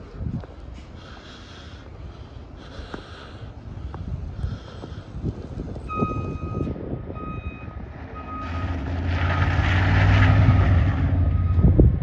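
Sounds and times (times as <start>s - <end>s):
reversing alarm beeping: 5.9s - 8.8s, 11.2s - 11.8s.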